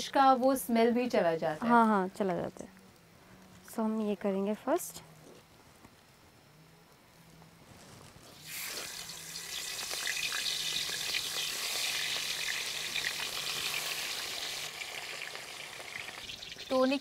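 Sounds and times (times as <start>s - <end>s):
fish frying in hot oil: 8.4s - 17.0s.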